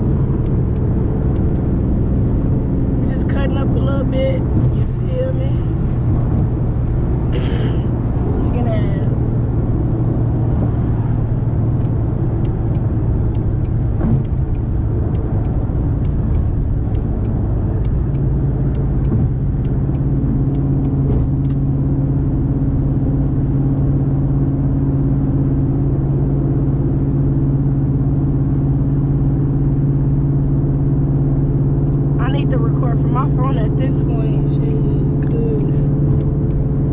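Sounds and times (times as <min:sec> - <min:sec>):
car engine drone: 0:00.0 - 0:36.9
road rumble: 0:00.0 - 0:36.9
light regular ticking: 0:00.1 - 0:02.5, 0:09.7 - 0:22.1.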